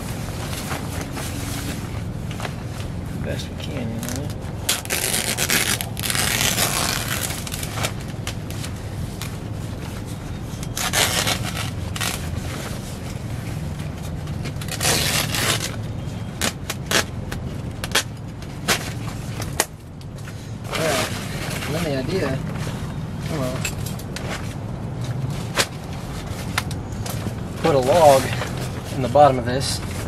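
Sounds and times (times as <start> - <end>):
plastic sheeting crinkling: 3.9 - 15.8.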